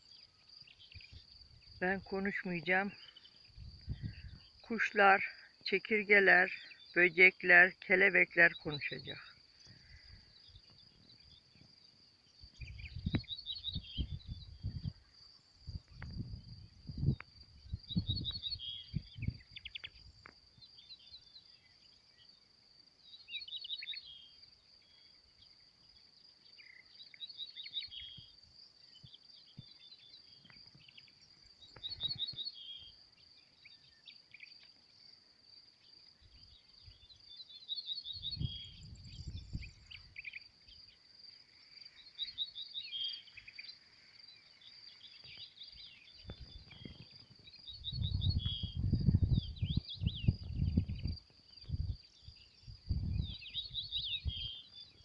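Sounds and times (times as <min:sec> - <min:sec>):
songbird chirping: 0:00.0 - 0:55.0
wind rumble on microphone: 0:03.4 - 0:04.5, 0:12.6 - 0:20.2, 0:38.2 - 0:40.1, 0:46.1 - 0:54.6.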